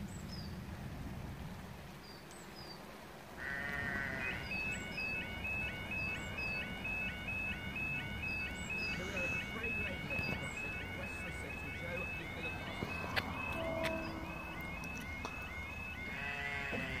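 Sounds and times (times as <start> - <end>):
level crossing warning alarm: 3.4 - 17.0.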